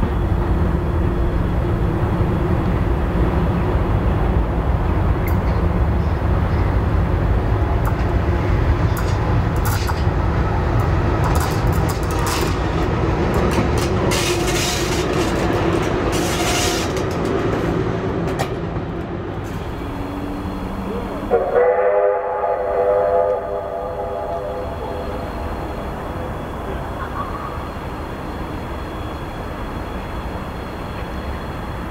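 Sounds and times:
train rumbling past: 0:00.0 - 0:31.9
wheels clicking over rail joints: 0:07.7 - 0:19.6
train whistle: 0:20.8 - 0:25.7.

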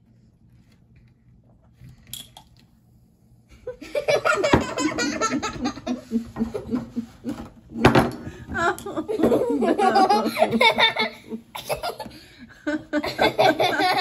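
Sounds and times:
girl laughing hard: 0:03.7 - 0:07.4, 0:12.7 - 0:14.0.

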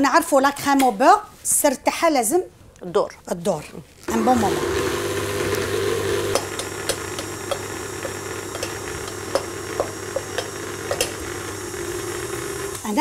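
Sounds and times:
electric stand mixer running: 0:04.1 - 0:13.0.

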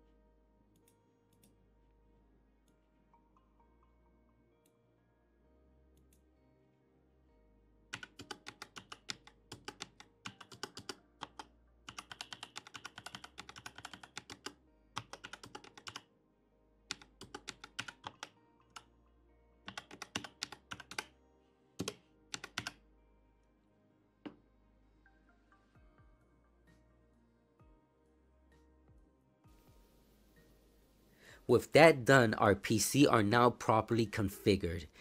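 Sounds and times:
computer keyboard typing: 0:07.9 - 0:16.1, 0:16.9 - 0:18.9, 0:19.7 - 0:21.1, 0:21.8 - 0:22.8.

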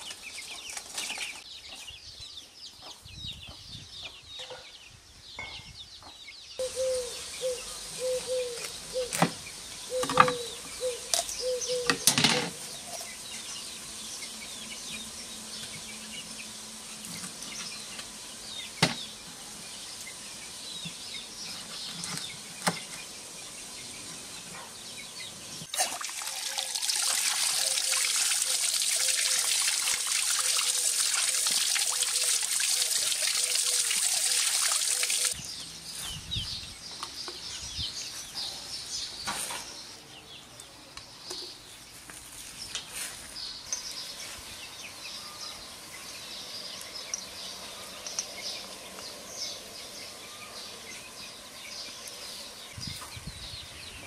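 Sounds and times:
running water: 0:25.6 - 0:35.4.

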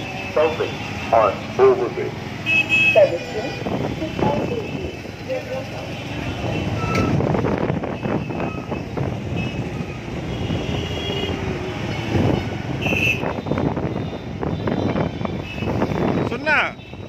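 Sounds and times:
traffic engine and road rumble: 0:00.0 - 0:17.0
wind on microphone: 0:06.6 - 0:10.0, 0:12.1 - 0:16.3.

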